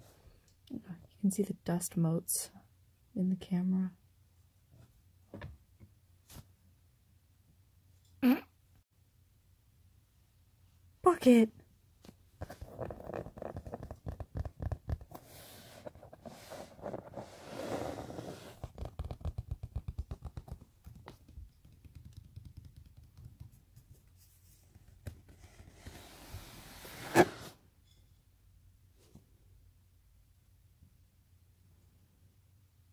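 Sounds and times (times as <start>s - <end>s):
fingers scratching leather: 12.4s - 26.0s.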